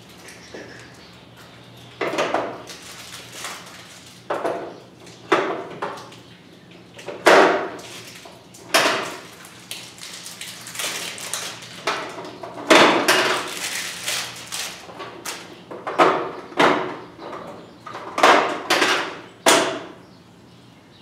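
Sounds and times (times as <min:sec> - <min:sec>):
hard plastic knocks and clatter: 0:11.8 - 0:13.6, 0:14.9 - 0:19.9.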